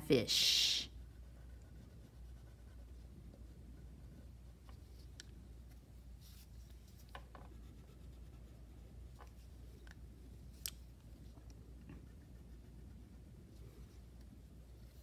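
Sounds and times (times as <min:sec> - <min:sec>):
low steady hum: 0:00.0 - 0:15.0
crayon scratching on paper: 0:01.0 - 0:05.0, 0:07.5 - 0:08.9.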